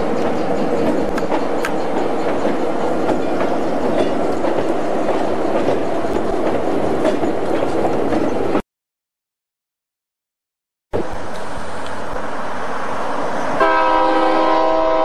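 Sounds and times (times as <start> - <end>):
train railcars rumbling on trestle: 0.0 - 8.6, 11.0 - 15.0
wheels clicking over rail joints: 0.0 - 8.6.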